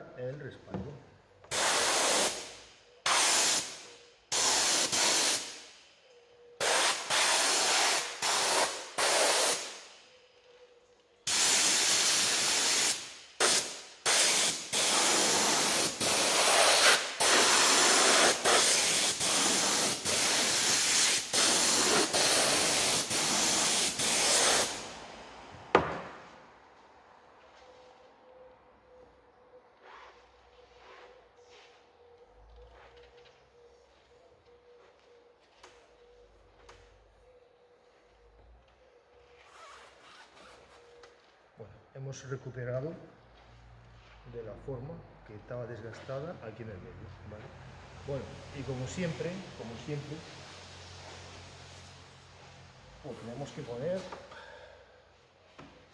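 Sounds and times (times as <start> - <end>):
glue spray gun hissing: 1.5 - 5.7, 6.6 - 9.8, 11.3 - 24.9.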